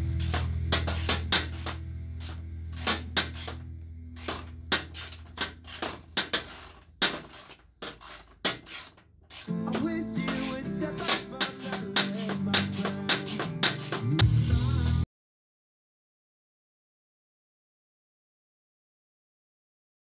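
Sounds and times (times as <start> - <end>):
small hard parts clicking: 0.1 - 3.6, 4.2 - 14.2.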